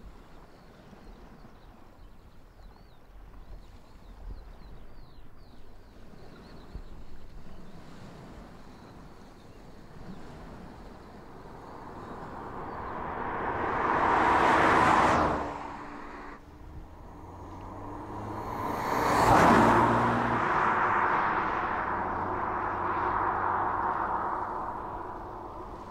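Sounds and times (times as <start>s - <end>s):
low steady engine hum: 4.9s - 25.9s
car passing by: 6.2s - 25.9s.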